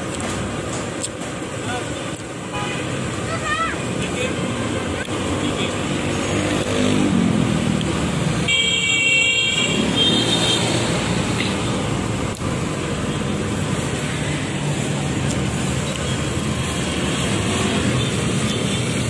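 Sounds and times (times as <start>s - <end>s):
road traffic: 0.0s - 19.0s
high-pitched car horn: 8.4s - 10.8s.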